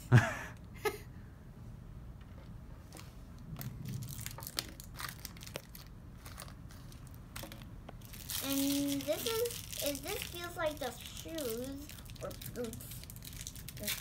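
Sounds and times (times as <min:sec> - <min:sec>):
crinkly wrapping being torn: 0:04.0 - 0:14.0.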